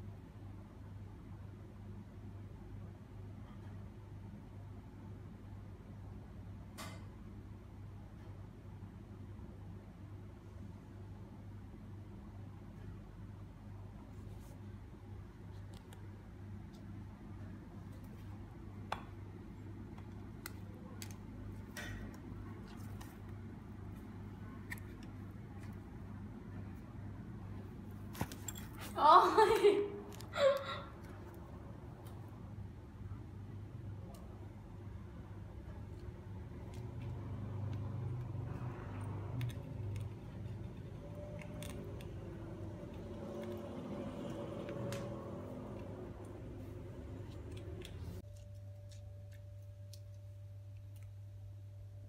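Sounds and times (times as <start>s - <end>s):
animal chewing and gnawing: 36.5s - 45.0s.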